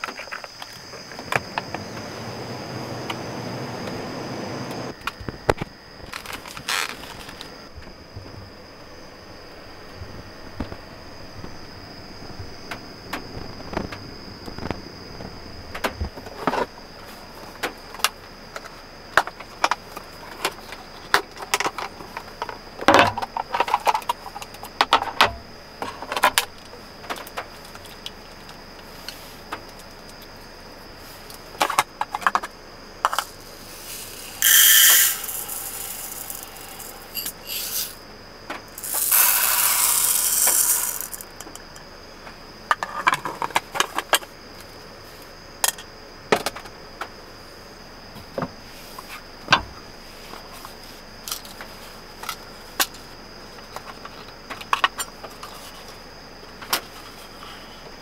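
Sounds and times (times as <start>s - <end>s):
dry rice pouring into pot: 33.8s - 37.9s, 38.8s - 41.2s.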